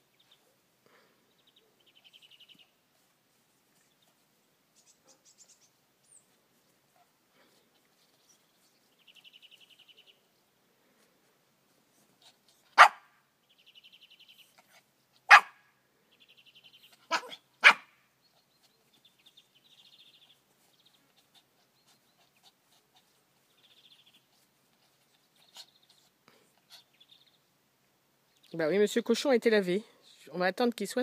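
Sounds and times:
dog barking: 12.8s - 13.1s, 15.3s - 15.6s, 17.1s - 17.9s.

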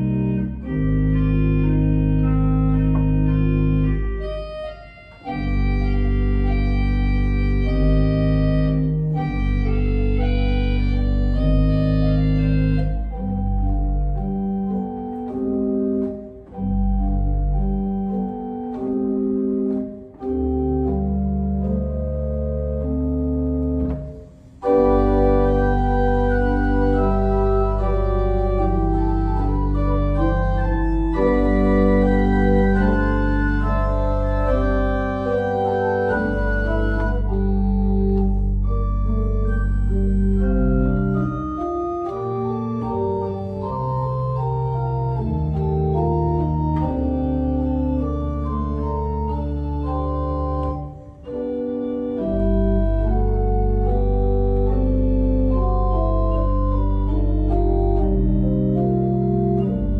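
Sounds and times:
church organ chords: 0.0s - 59.9s
organ pedal bass notes: 0.0s - 59.9s.

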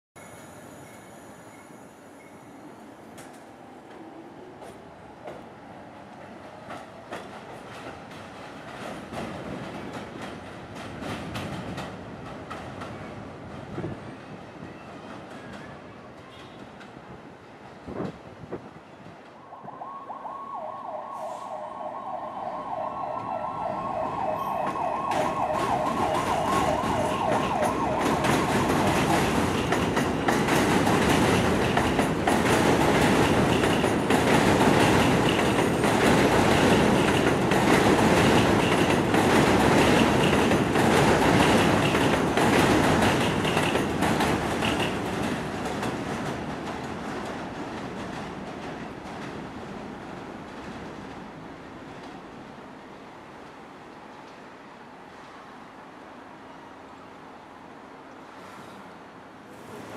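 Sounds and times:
subway train rumbling past: 0.2s - 59.9s
emergency siren wavering: 19.4s - 29.4s
wheels clicking over rail joints: 24.6s - 49.5s.

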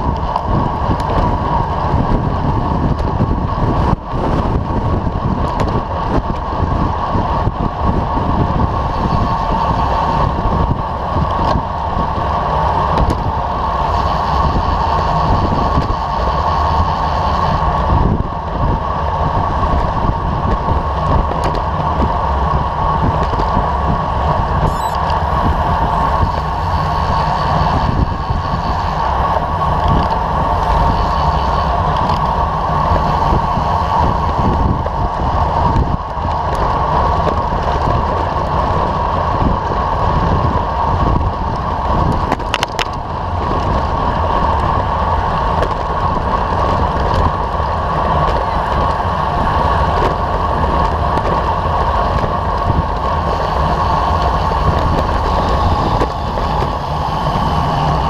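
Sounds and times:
tyre rumble and road vibration: 0.0s - 58.0s
wind on microphone: 0.0s - 58.0s.

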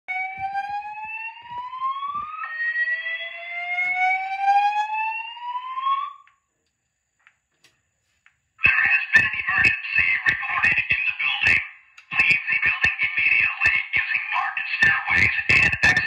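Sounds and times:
rising whoop alarm tone: 0.1s - 6.3s.

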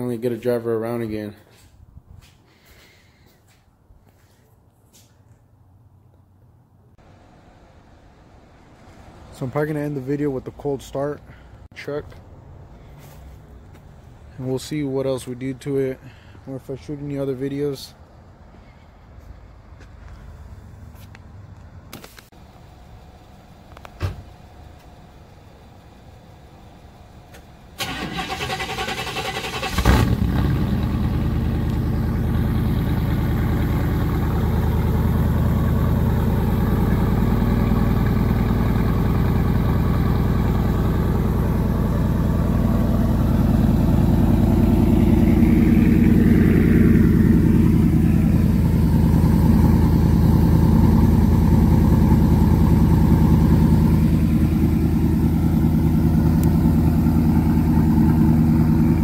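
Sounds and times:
car engine idling: 22.4s - 59.0s.

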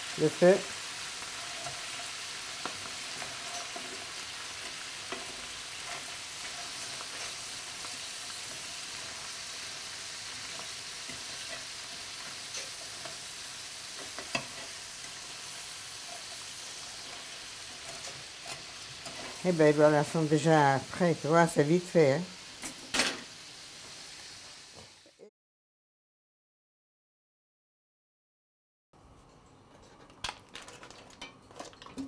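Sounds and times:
langoustines sizzling in a pan: 0.0s - 25.3s.

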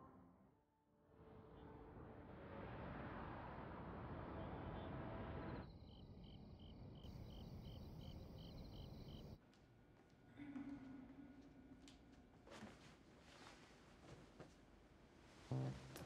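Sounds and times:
insect chirping: 5.6s - 9.4s.

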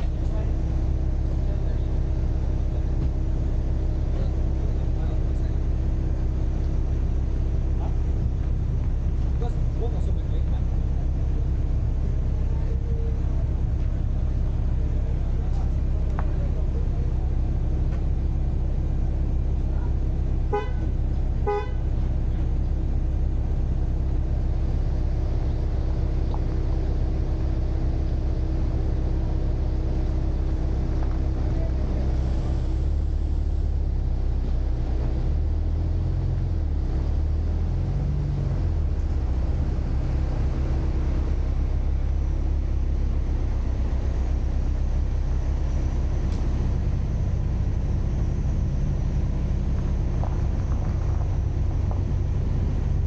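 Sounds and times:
low engine rumble: 0.0s - 53.0s
vehicle horn toots: 20.4s - 22.0s.

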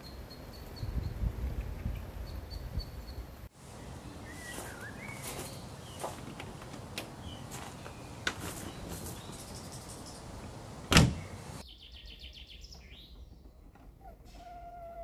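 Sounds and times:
birds chirping: 0.0s - 15.0s
car door shutting thump: 10.9s - 11.3s.

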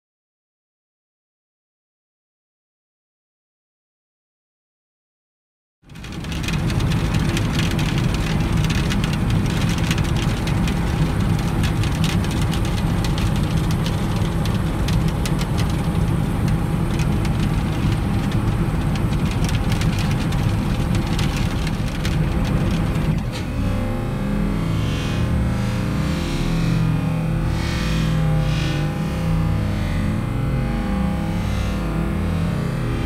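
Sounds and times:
machinery engine hum: 5.9s - 26.7s.

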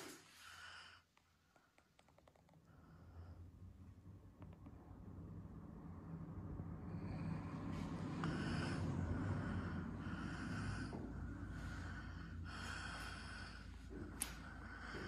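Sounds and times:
close breathing: 0.0s - 1.1s, 6.9s - 15.0s
low steady rumble: 2.4s - 15.0s.

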